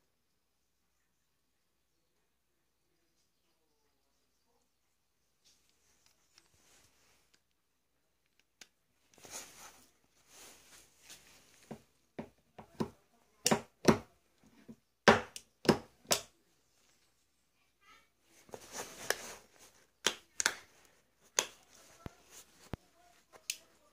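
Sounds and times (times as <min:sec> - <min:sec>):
rustling: 0:05.2 - 0:07.6, 0:08.2 - 0:12.0, 0:18.0 - 0:23.9.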